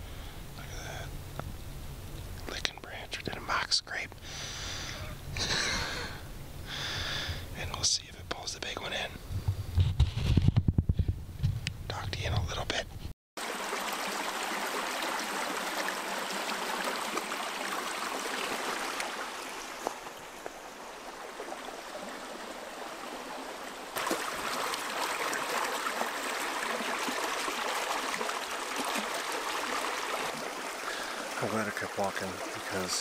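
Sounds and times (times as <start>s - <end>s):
creek water rushing: 13.4s - 33.0s.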